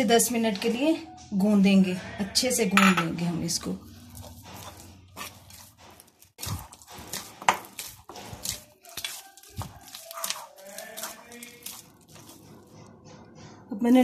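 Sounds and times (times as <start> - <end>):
glass bowl knocking: 2.7 - 3.2
hands kneading dough: 3.5 - 13.3.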